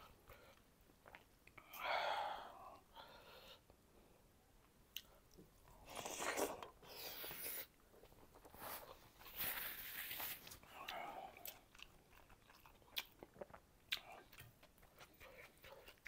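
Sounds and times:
person chewing: 5.9s - 16.0s.

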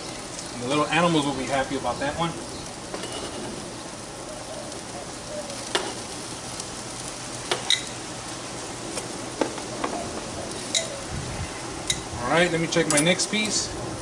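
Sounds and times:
chicken sizzling on a grill: 0.0s - 14.0s
pops and crackles: 4.6s - 8.0s, 8.8s - 11.0s.

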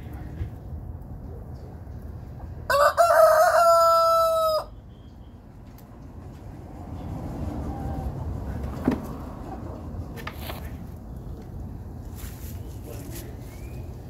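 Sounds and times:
rooster crowing: 2.7s - 4.8s.

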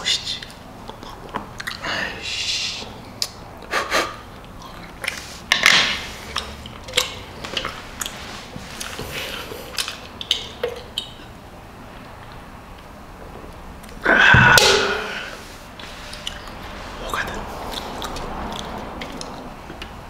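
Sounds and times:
chewing: 0.4s - 1.8s, 3.0s - 5.4s, 6.2s - 11.4s, 16.0s - 19.9s.

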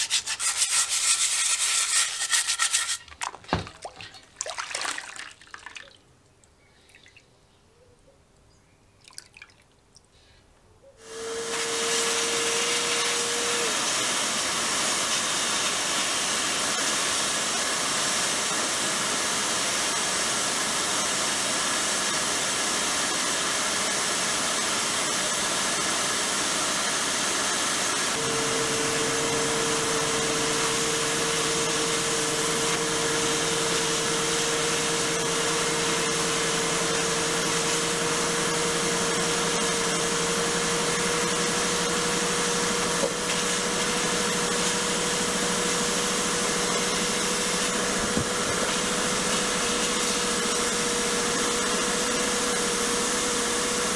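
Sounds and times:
sponge scrubbing in soapy water: 0.0s - 5.4s, 42.9s - 53.1s
air blast gun hissing: 11.0s - 53.9s.

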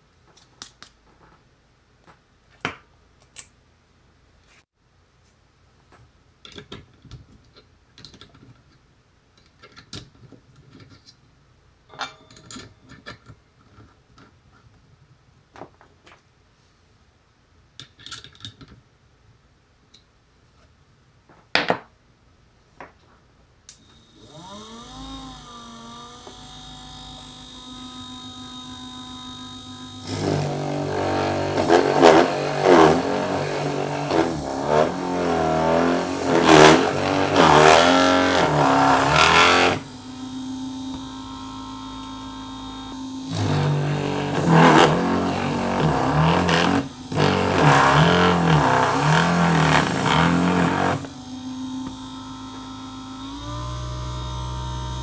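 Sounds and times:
drill motor running: 23.8s - 55.0s
step drill cutting plastic box: 23.8s - 55.0s.

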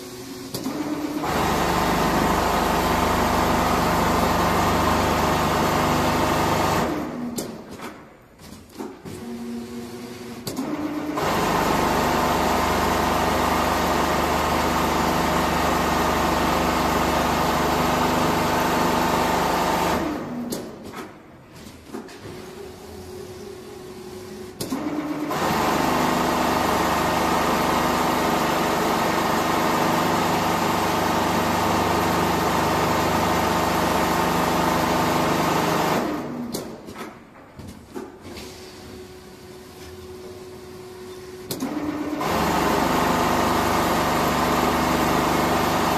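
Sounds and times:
sewing machine running: 0.4s - 7.3s, 9.2s - 20.4s, 22.4s - 36.5s, 41.6s - 45.9s.

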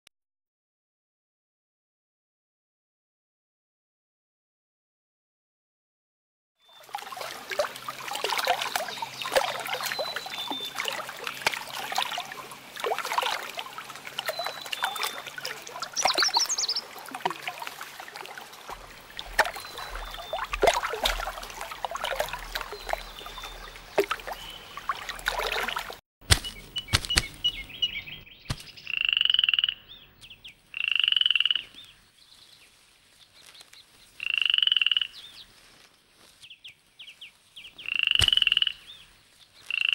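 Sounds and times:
frogs croaking chorus: 6.7s - 26.0s, 28.8s - 32.0s, 34.1s - 35.5s, 37.7s - 39.9s
drawn-out frog calls: 7.8s - 18.0s, 18.7s - 26.0s, 26.6s - 32.0s, 34.1s - 35.4s, 37.7s - 39.9s.

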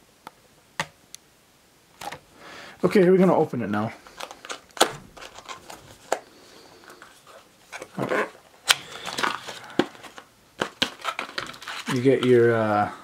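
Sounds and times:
cardboard scraping rustles: 6.8s - 12.5s.

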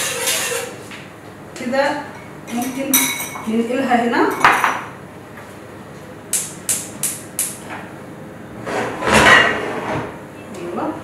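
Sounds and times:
scrape in pot: 0.0s - 0.8s.

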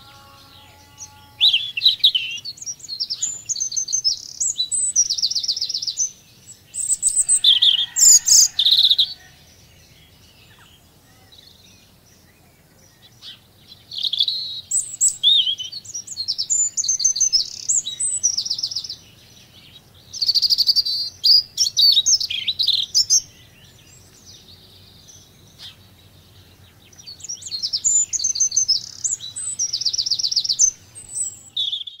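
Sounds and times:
songbirds chirping and trilling: 0.0s - 32.0s.

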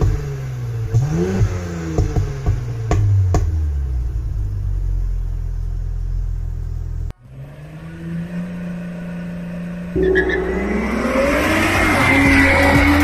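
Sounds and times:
exhaust pops and crackles: 0.0s - 7.1s
car engine idling: 0.0s - 7.3s
car engine revving: 0.0s - 13.0s.

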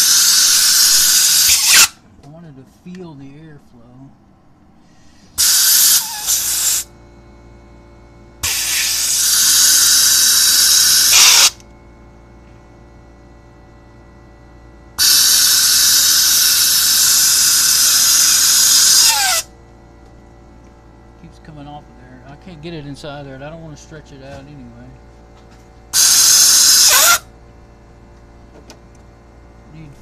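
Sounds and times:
compressed air hissing: 0.0s - 2.0s, 4.8s - 6.9s, 8.4s - 11.6s, 15.0s - 19.5s, 26.0s - 27.2s
air compressor humming: 0.0s - 30.0s.

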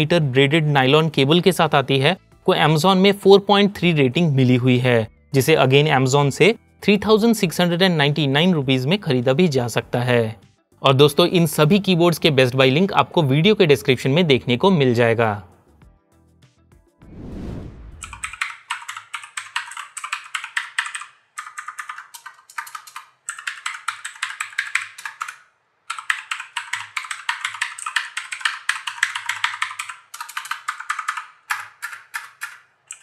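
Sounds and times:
brief whoosh: 17.0s - 18.3s
fast mechanical keyboard typing: 18.0s - 33.0s.

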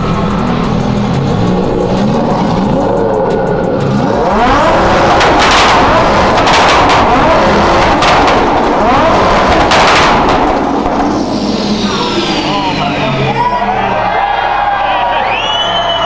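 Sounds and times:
car engine revving: 0.0s - 16.0s
exhaust pops and bangs: 4.7s - 11.3s.

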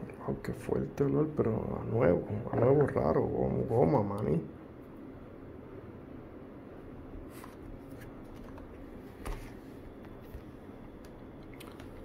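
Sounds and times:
low background hum: 0.0s - 12.0s
handling rustles and taps: 7.4s - 11.2s.

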